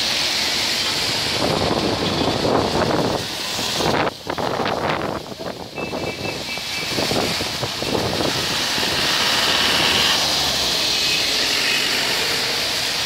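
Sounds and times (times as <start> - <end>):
tyres hissing on wet road: 0.0 - 13.0.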